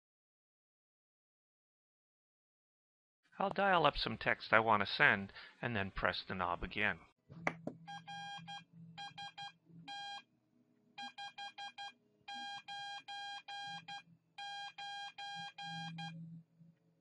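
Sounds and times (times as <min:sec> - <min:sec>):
morse code beeps: 0:07.9 - 0:10.2, 0:11.0 - 0:16.3.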